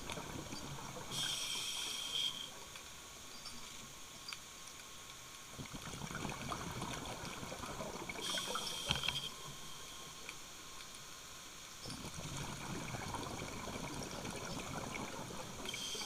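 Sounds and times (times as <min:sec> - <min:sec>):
regulator inhale hiss: 0:01.1 - 0:02.6, 0:08.2 - 0:10.2, 0:15.7 - 0:16.0
exhaled bubbles burbling: 0:05.6 - 0:08.5, 0:11.8 - 0:15.8.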